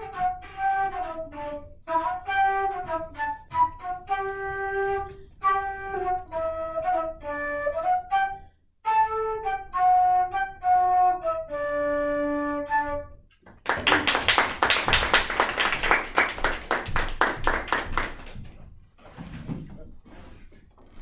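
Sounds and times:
flute playing slow melody: 0:00.0 - 0:13.3
audience applauding: 0:13.4 - 0:18.6.

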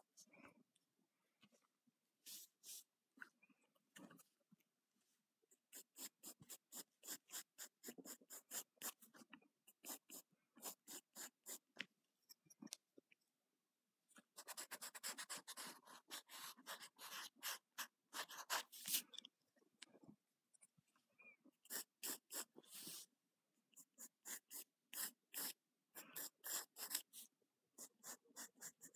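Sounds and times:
pencil sketching on paper: 0:05.7 - 0:11.8, 0:14.4 - 0:19.0, 0:21.7 - 0:23.1, 0:23.8 - 0:28.9.

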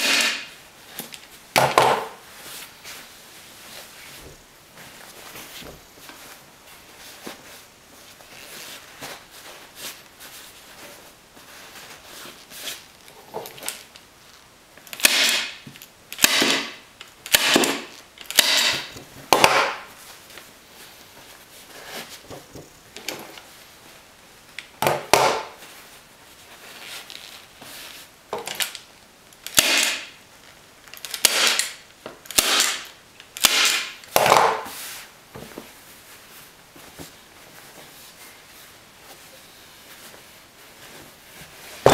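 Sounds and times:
fabric rustling: 0:02.2 - 0:13.3, 0:34.7 - 0:41.9.

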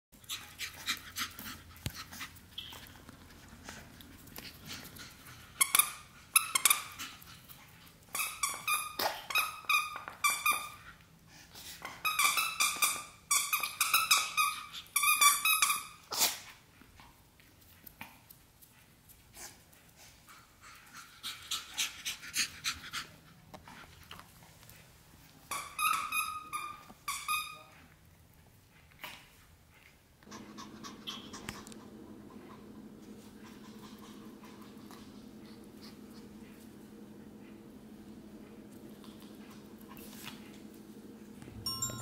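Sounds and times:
dog toy squeaking: 0:25.5 - 0:27.7.

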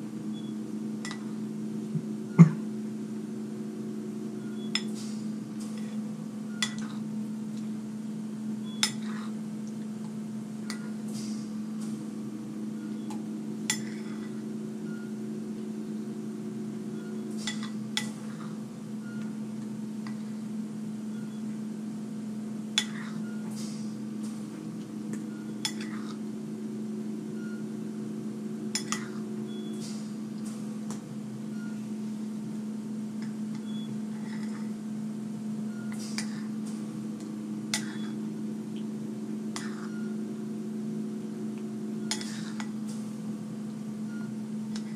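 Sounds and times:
steady low hum: 0:00.0 - 0:44.9
metal spoon clinking on bowl: 0:06.6 - 0:06.9, 0:28.8 - 0:29.1, 0:42.1 - 0:42.7.

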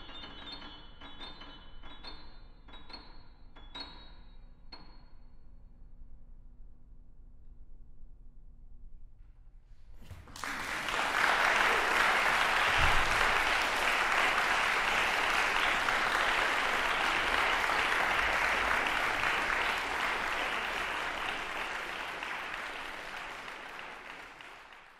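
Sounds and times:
audience applauding: 0:10.1 - 0:24.9.

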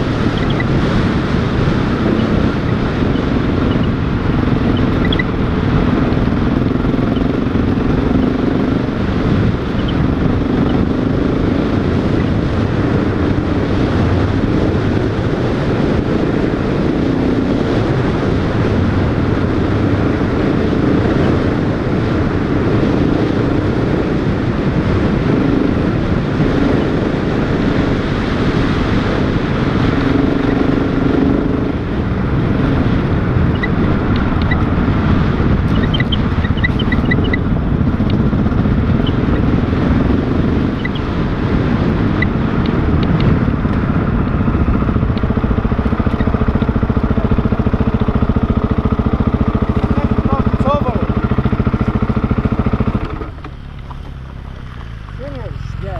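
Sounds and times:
motorcycle engine running: 0:00.0 - 0:55.9
road noise rumble: 0:00.0 - 0:55.9.

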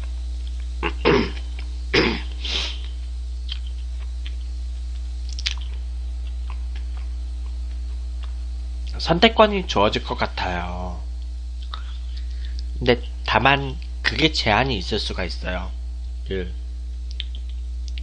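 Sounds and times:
steady low hum: 0:00.0 - 0:18.0
man chewing food: 0:00.1 - 0:08.4.

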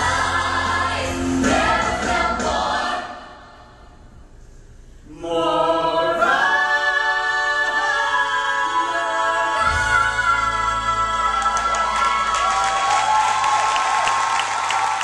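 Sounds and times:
group singing in close harmony: 0:00.0 - 0:03.7, 0:05.1 - 0:12.4.

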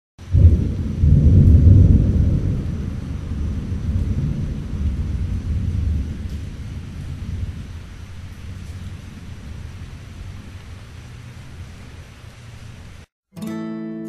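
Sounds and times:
rolling thunder: 0:00.2 - 0:12.1.

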